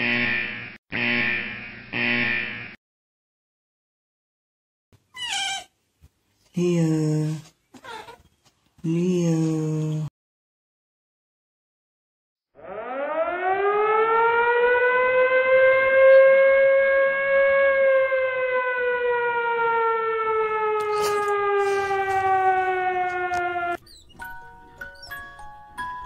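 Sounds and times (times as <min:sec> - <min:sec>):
air-raid siren wailing: 0:12.5 - 0:25.4.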